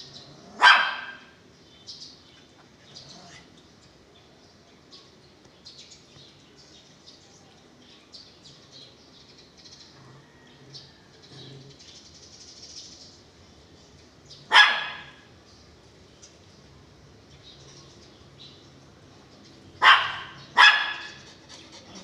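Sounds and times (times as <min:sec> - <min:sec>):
dog barking: 0:00.5 - 0:01.3, 0:14.5 - 0:15.2, 0:19.8 - 0:21.3.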